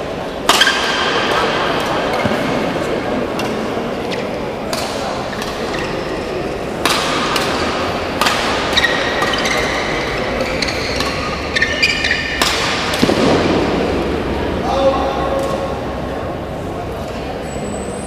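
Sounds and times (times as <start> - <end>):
badminton rackets hitting shuttlecock: 0.4 - 2.5, 3.3 - 13.4.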